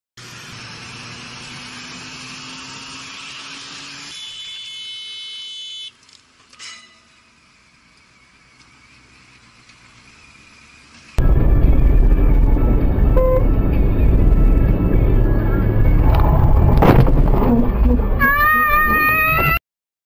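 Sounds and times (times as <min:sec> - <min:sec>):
motorcycle engine: 0:00.2 - 0:04.8, 0:07.1 - 0:18.2
high steady tone: 0:11.2 - 0:16.0
wind noise: 0:11.2 - 0:18.4.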